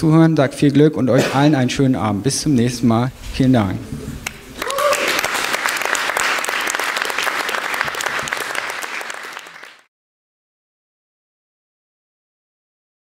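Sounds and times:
audience applauding: 4.2s - 9.9s.

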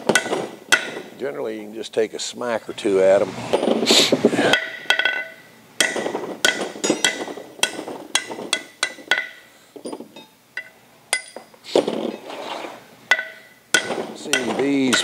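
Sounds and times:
hammer striking metal: 4.4s - 9.3s.

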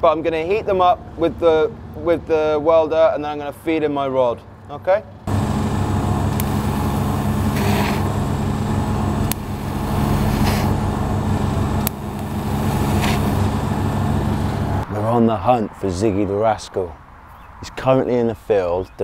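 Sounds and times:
welding arc buzzing: 5.3s - 14.8s
sharp clicks: 6.3s - 6.6s, 9.2s - 9.5s, 11.8s - 12.4s
brief hissing: 6.4s - 8.1s, 9.8s - 10.8s, 12.4s - 13.5s.

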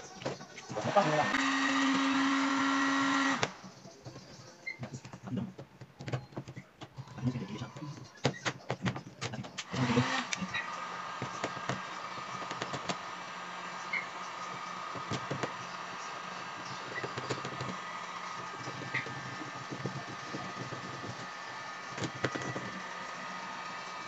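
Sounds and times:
heat gun blower whine: 0.0s - 3.7s, 7.2s - 24.0s
sharp clicks and knocks: 11.2s - 13.1s, 13.9s - 15.9s, 16.8s - 22.8s.

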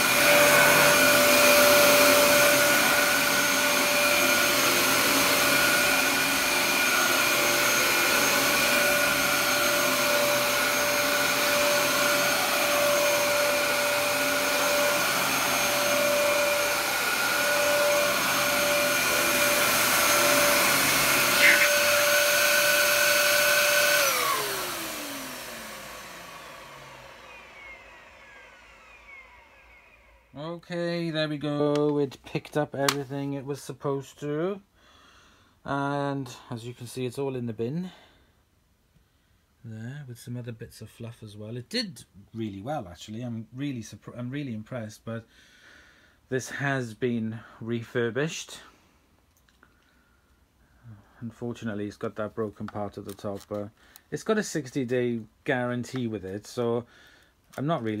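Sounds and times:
vacuum motor winding down: 0.0s - 30.4s
vacuum cleaner running: 0.0s - 30.6s.

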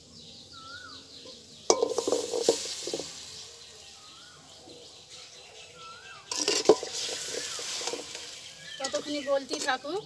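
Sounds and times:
bird chirps: 0.0s - 10.0s
lumps knocking into iron wok: 1.7s - 3.2s, 6.3s - 9.7s.

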